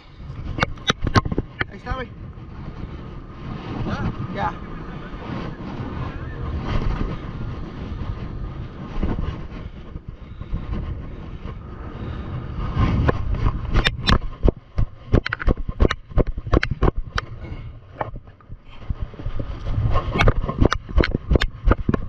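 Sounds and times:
wind buffeting microphone: 0.0 - 22.0
sharp clicks and knocks: 0.6 - 1.7, 13.0 - 17.3, 19.6 - 22.0.

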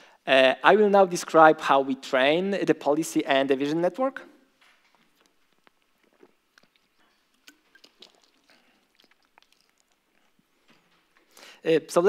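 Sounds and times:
plastic bottle crinkling: 4.6 - 11.4.

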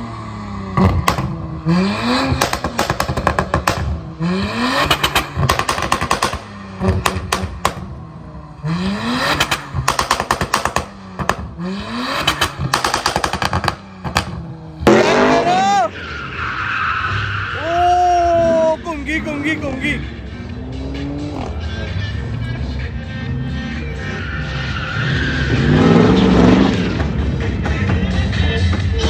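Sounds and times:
car engine revving: 0.0 - 29.0
exhaust pops and crackles: 0.8 - 1.4, 2.3 - 4.0, 4.8 - 8.0, 9.3 - 11.6, 12.2 - 15.5.

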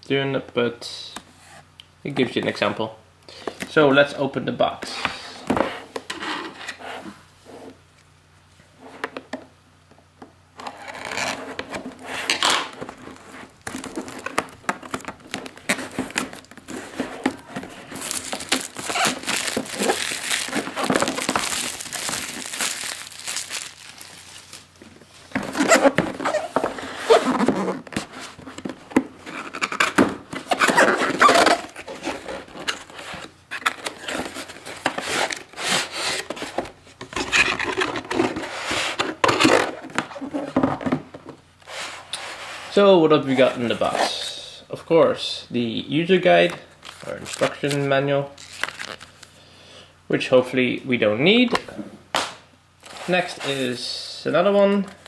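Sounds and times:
paper rustling and crinkling: 12.8 - 40.5, 46.8 - 49.3
cardboard box being opened: 13.7 - 24.6.

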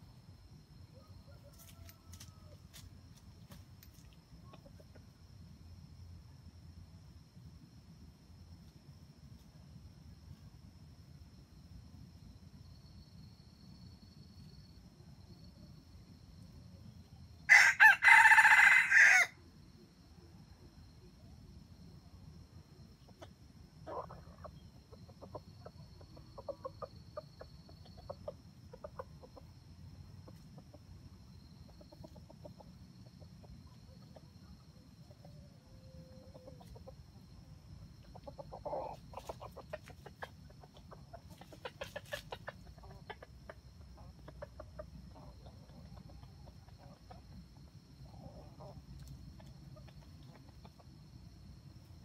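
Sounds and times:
junglefowl clucking: 23.0 - 29.6, 38.0 - 47.3.

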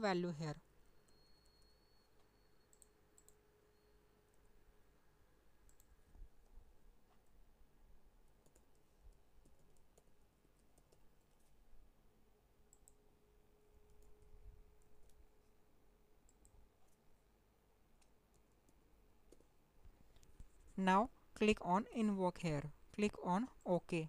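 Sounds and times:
keyboard typing: 0.9 - 4.5, 5.6 - 7.3, 8.2 - 11.5, 12.7 - 13.0, 13.7 - 15.3, 16.2 - 17.1, 18.0 - 19.5
mouse clicks: 1.0 - 3.4, 5.6 - 6.0.

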